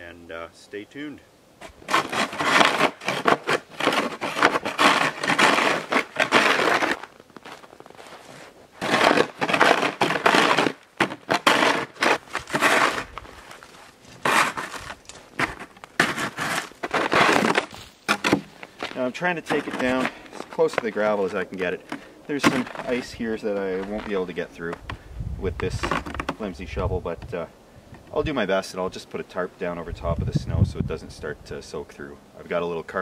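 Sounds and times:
snow shovel scraping snow: 1.6s - 24.4s.

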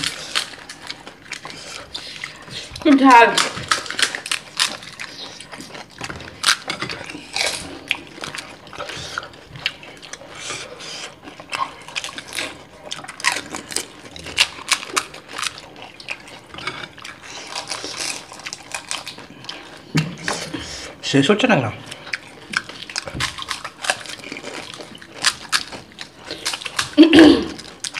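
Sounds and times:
crisp shells crunching: 0.0s - 8.6s, 17.4s - 19.9s, 22.2s - 27.9s
wet chewing: 0.0s - 21.0s, 21.8s - 27.9s.

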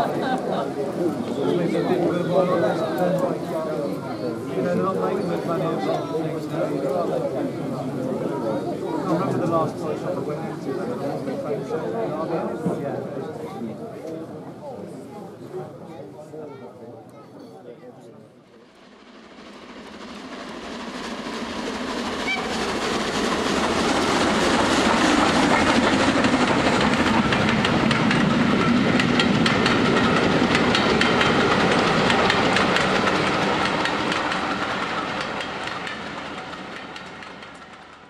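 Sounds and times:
train wheels clattering over rails: 18.8s - 38.0s.

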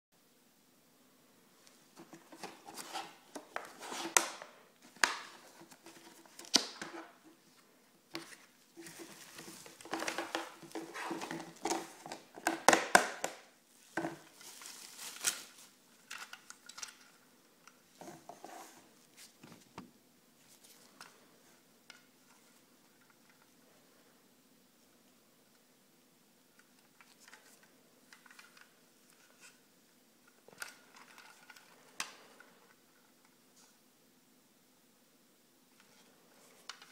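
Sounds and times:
plastic packaging crinkling and tearing: 13.7s - 17.0s.

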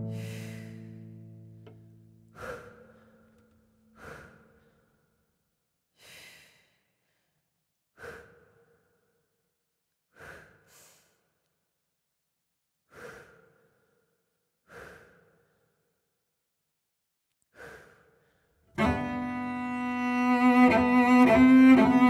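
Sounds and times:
plucked cello chord: 0.0s - 2.1s, 18.8s - 22.0s
slow breaths: 0.0s - 5.3s, 5.9s - 9.4s, 10.1s - 11.6s, 12.9s - 16.1s, 17.4s - 22.0s.

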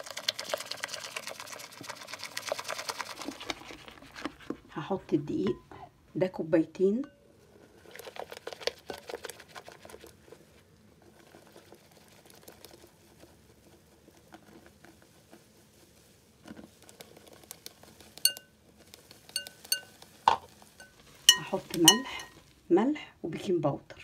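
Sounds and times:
wire whisk stirring batter: 0.0s - 4.5s, 7.0s - 10.2s, 16.6s - 22.4s.

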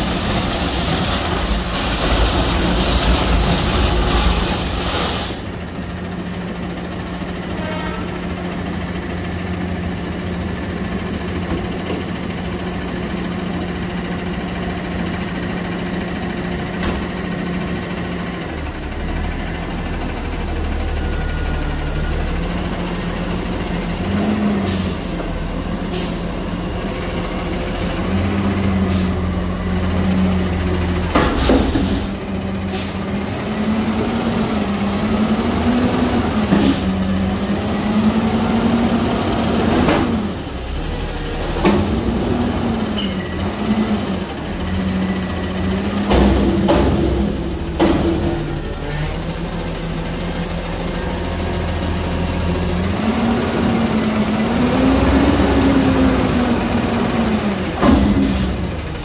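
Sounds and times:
garbage truck engine revving: 0.0s - 7.3s, 8.5s - 59.0s.

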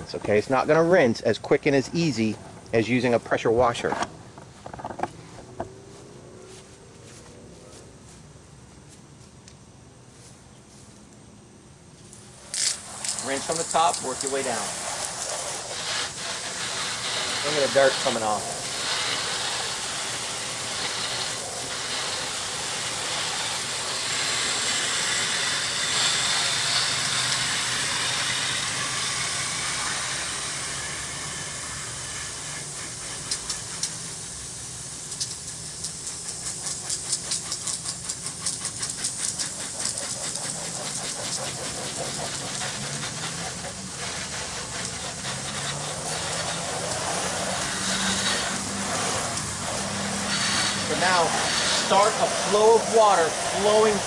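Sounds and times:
hose spray nozzle hissing: 12.1s - 54.0s
rapid water patter: 12.9s - 24.0s, 35.2s - 54.0s.

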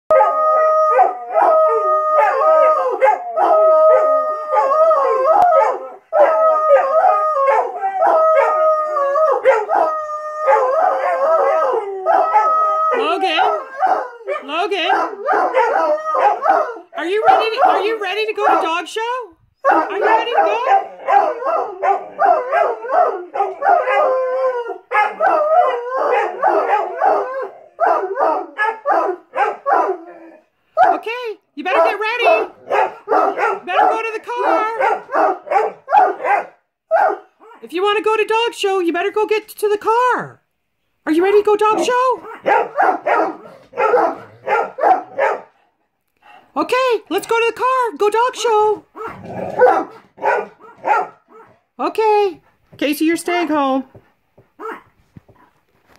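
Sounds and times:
dog howling: 0.1s - 18.6s, 19.6s - 30.9s.

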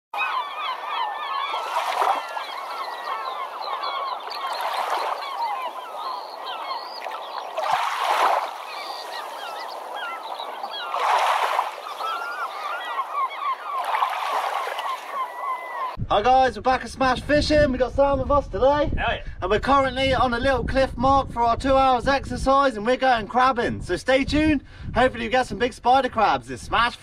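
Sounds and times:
flock of birds calling: 0.2s - 16.0s
rushing wash: 4.2s - 13.2s.

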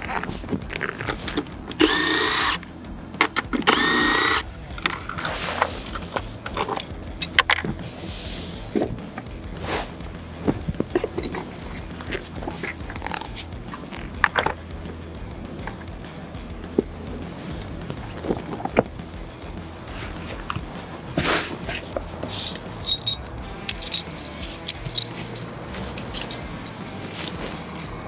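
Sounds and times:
cordless drill whirring: 1.8s - 2.6s, 3.7s - 4.5s
clicks and knocks of parts handled: 3.2s - 7.8s, 22.3s - 28.0s.

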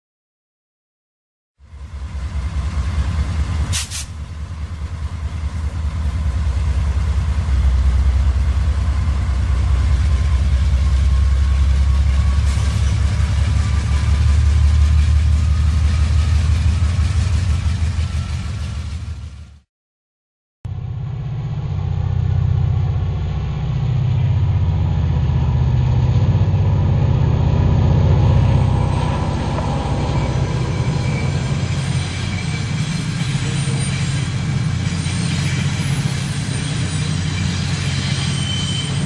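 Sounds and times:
diesel locomotive engine rumbling: 1.6s - 19.6s, 20.7s - 39.0s
short high hiss: 3.7s - 4.2s.

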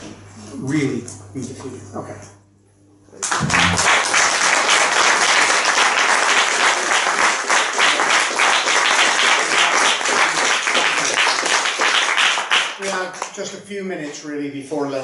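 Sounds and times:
audience applauding: 3.2s - 13.2s.

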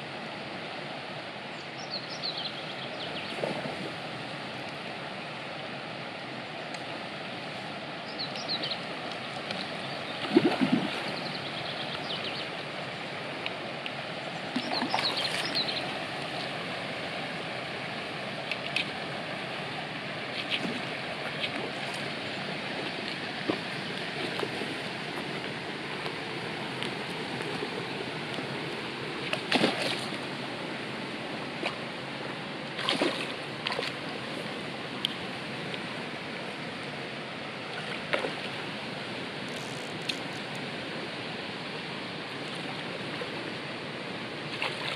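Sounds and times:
river water rushing: 0.0s - 44.9s
brief water splashes: 10.2s - 11.0s, 29.3s - 30.1s, 32.8s - 33.9s.

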